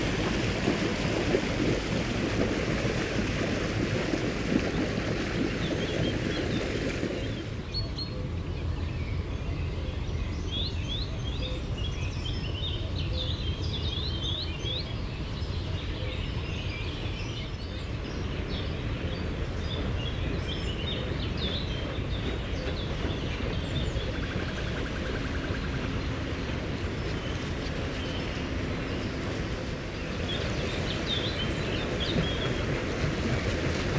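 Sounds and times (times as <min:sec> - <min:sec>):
steady low rumble: 0:00.0 - 0:07.7
songbirds chirping: 0:05.6 - 0:33.5.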